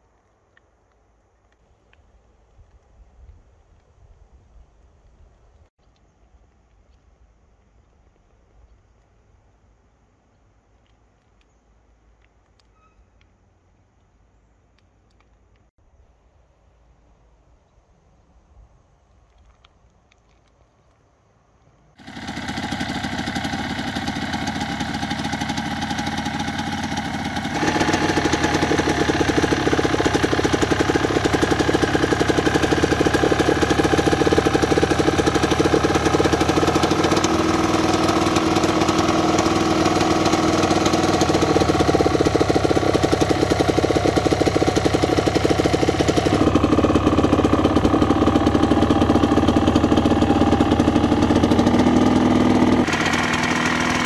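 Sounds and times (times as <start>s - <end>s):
two-stroke engine idling: 22.0s - 54.0s.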